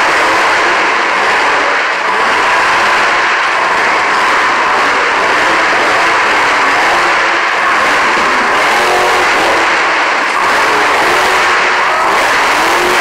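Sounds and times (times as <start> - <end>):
monster truck engine running: 0.0 - 13.0.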